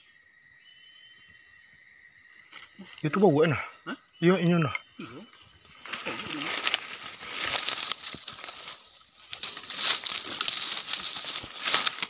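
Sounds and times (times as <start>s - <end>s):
rustling through undergrowth: 5.6s - 12.0s
footsteps crunching dry leaves: 5.8s - 12.0s.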